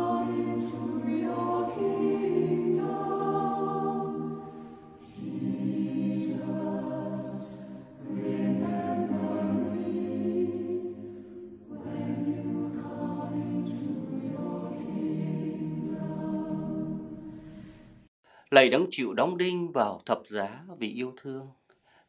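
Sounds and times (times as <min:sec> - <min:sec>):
choir singing a hymn: 0:00.0 - 0:17.9
singers breathing: 0:04.3 - 0:05.2, 0:17.2 - 0:18.5, 0:21.7 - 0:22.0.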